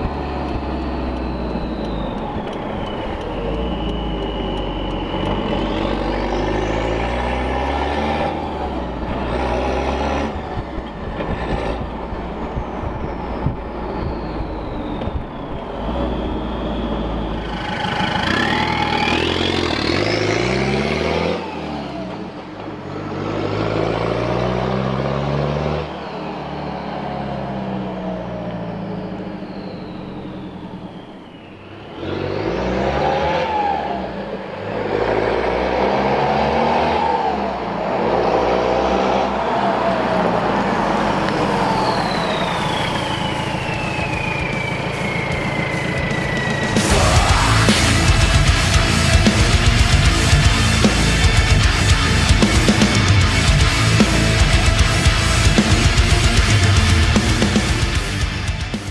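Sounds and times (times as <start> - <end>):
diesel engine revving: 0.0 - 58.9
turbo whistle: 0.1 - 7.2, 12.6 - 20.3, 28.6 - 34.2, 41.3 - 50.7.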